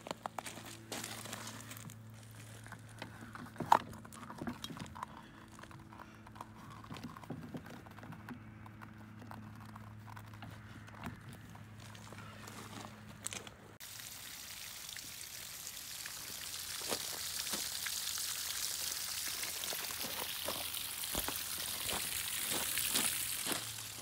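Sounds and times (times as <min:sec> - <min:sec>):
footsteps on gravel: 0:00.0 - 0:04.7, 0:11.4 - 0:13.6, 0:19.6 - 0:24.0.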